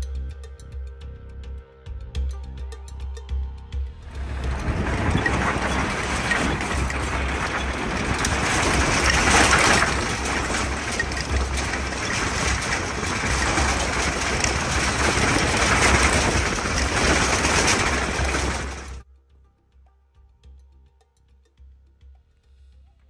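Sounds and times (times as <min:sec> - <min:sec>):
vehicle engine and tyres rumbling: 0:03.9 - 0:19.0
road noise: 0:04.0 - 0:19.0.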